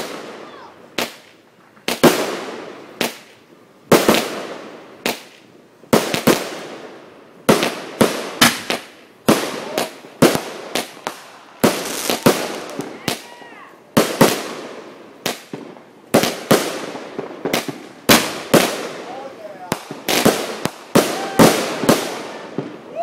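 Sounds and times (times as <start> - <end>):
fireworks bangs with echo: 0.0 - 23.0.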